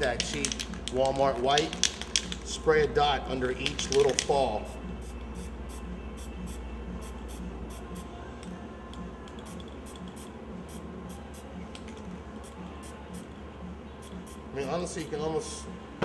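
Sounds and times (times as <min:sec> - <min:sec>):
background music with steady beat: 0:00.0 - 0:16.0
spray paint can hissing: 0:03.6 - 0:08.1, 0:09.3 - 0:13.3, 0:14.0 - 0:14.4.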